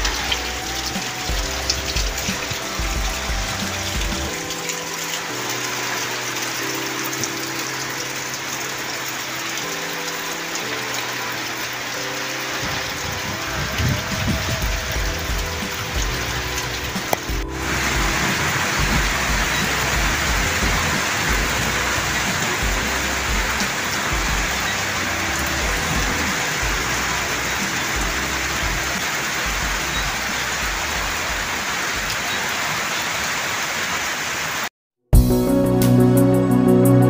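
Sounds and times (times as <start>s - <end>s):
steady rain on wet ground: 0.0s - 34.7s.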